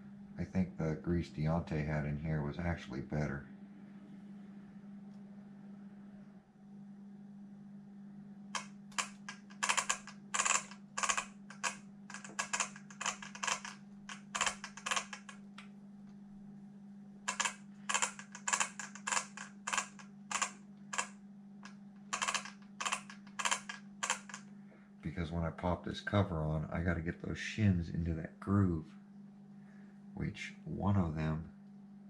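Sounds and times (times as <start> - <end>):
steady low hum: 0.0 - 32.0
plastic parts clicking: 8.6 - 15.4, 17.3 - 21.1, 22.1 - 24.4.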